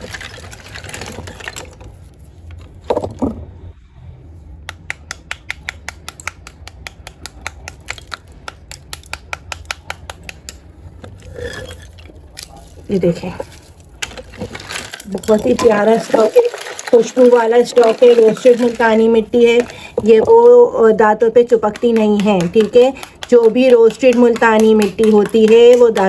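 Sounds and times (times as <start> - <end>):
clay pieces knocking: 4.6 - 10.7, 11.4 - 20.6, 21.2 - 26.0
small hammer tapping clay: 4.6 - 10.7, 21.3 - 26.0.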